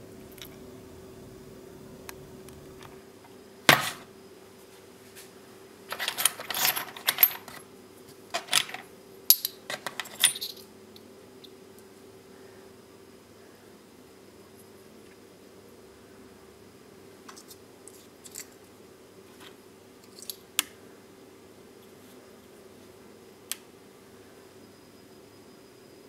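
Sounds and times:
hard parts clinking in plastic box: 5.9 - 7.6, 8.3 - 10.6.

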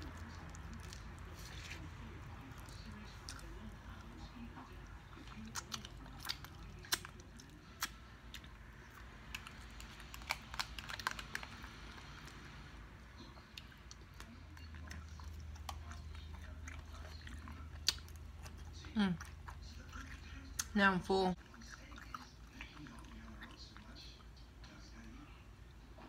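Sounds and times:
chewing with wet mouth smacks: 0.0 - 12.5, 13.1 - 25.1.

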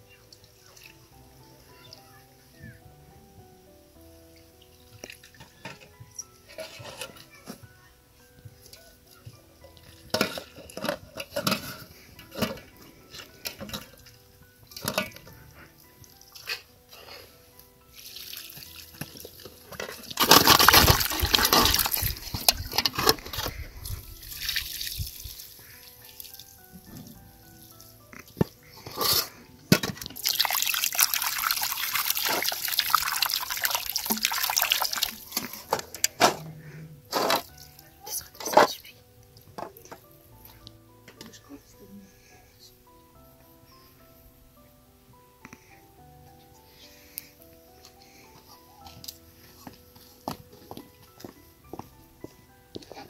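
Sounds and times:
metal basin clattering: 10.0 - 14.0, 14.7 - 15.4, 18.9 - 23.6, 28.8 - 37.5
water pouring from a jug: 18.0 - 22.8, 24.2 - 26.4, 30.0 - 35.7.

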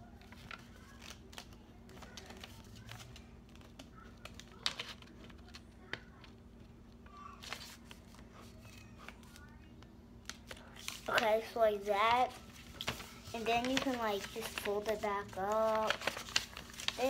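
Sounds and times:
paper crinkles: 0.1 - 6.3, 7.2 - 9.6, 10.2 - 17.0
paper rustling and tapping: 0.2 - 6.4, 10.2 - 17.0.

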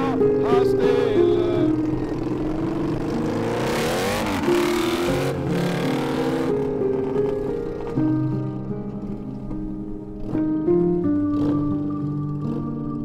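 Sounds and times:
quad bike engine revving: 0.0 - 8.0, 11.2 - 13.0
background music: 0.0 - 13.0.

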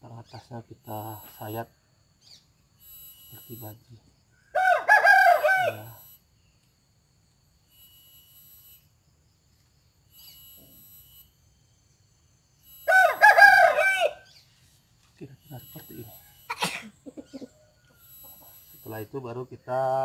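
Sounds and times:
rooster crowing: 4.4 - 6.1, 12.8 - 14.4, 16.1 - 18.7.

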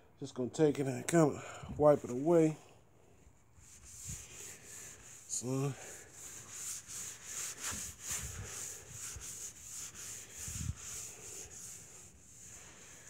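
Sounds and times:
cloth rubbing on wet car hood: 3.6 - 13.0.

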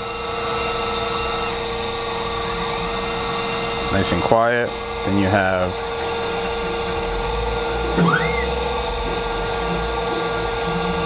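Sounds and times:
grinding wheel spindle whine: 0.0 - 11.0
brief rising chirp: 8.0 - 8.6.

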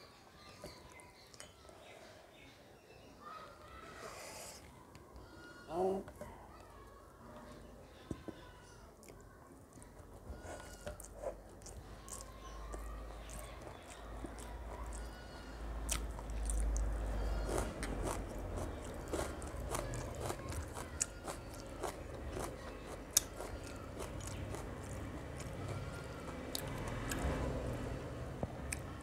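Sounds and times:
close-up chewing: 9.0 - 27.6.

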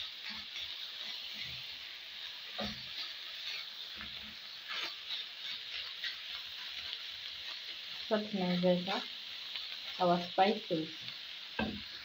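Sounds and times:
onions sizzling in a frying pan: 0.0 - 12.0.

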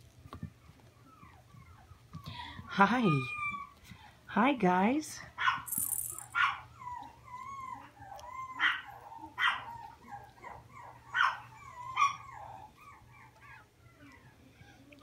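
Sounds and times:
puppies whimpering: 0.5 - 4.1, 6.4 - 15.0
puppies yipping: 5.4 - 15.0.

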